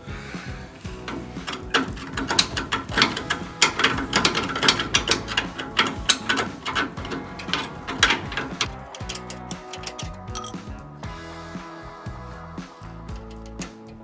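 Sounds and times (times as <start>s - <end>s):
hand tool scraping metal: 0.9s - 10.7s, 13.1s - 14.0s.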